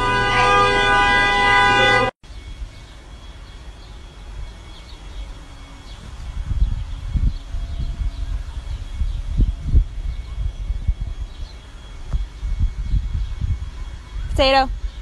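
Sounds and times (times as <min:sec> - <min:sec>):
loud blaring tone: 0:00.0 - 0:14.9
low rumbling thumps: 0:05.9 - 0:15.0.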